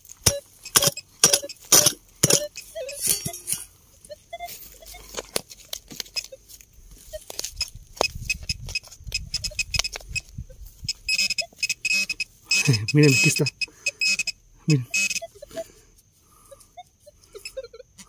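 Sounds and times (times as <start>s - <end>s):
metal detector high tone: 0.0s - 5.3s, 6.1s - 15.8s, 16.4s - 18.0s
digging and scraping in soil: 0.0s - 14.2s.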